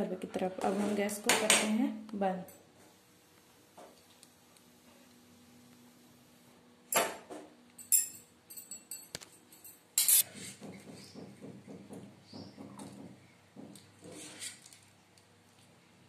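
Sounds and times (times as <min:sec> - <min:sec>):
metal kitchenware clattering: 0:06.9 - 0:10.2.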